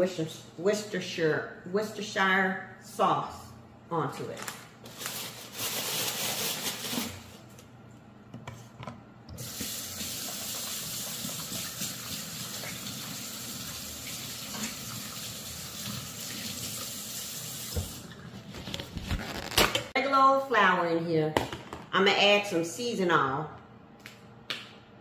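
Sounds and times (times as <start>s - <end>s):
faucet running into metal sink: 9.4s - 18.0s.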